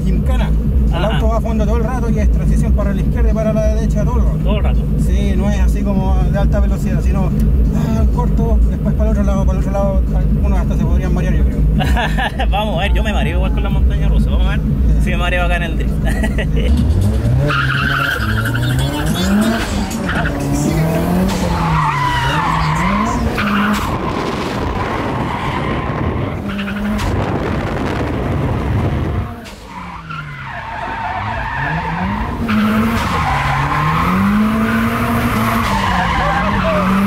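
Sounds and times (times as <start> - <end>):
car engine revving: 0.0 - 37.0
tyre screech: 17.3 - 27.2, 29.3 - 37.0.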